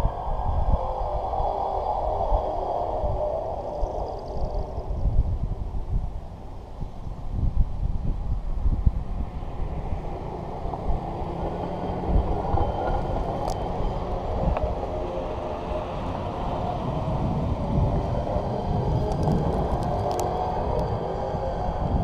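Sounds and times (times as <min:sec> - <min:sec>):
wheels rolling on rails: 0:09.1 - 0:22.0.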